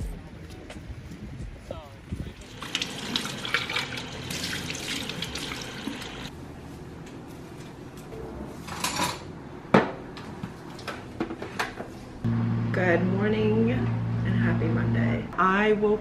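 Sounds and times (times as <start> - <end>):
tap water running into sink: 2.5 - 6.3.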